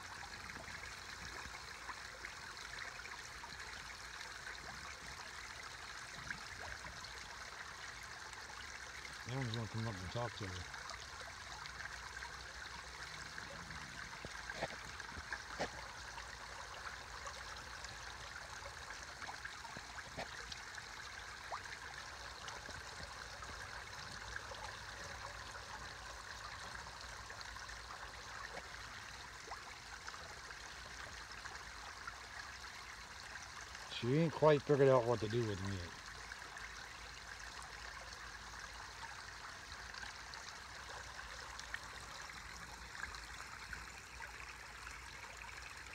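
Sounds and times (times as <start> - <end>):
small waterfall splashing into pond: 0.0 - 45.9.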